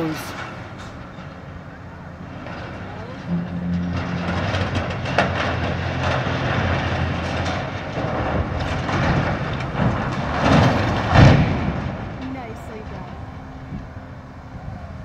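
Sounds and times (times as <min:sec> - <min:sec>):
steel frame creaking: 0:00.0 - 0:14.2
excavator engine under load: 0:00.0 - 0:15.0
loud crash of tower falling: 0:02.4 - 0:12.2.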